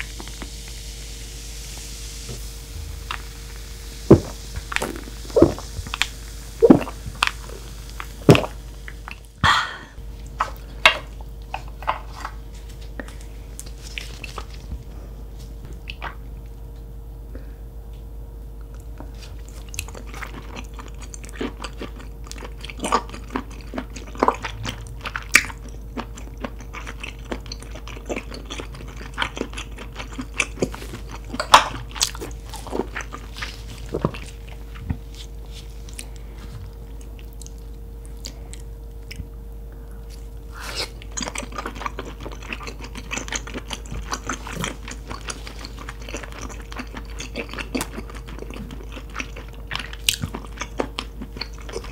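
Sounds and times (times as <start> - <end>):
faint steady hum: 0.0 - 51.9
person chewing seafood: 10.1 - 14.7, 18.7 - 39.4, 40.0 - 51.9.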